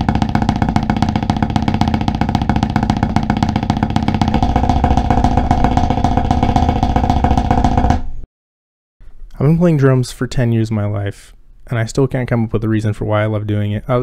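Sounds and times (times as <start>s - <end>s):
snare drum roll: 0.0s - 8.2s.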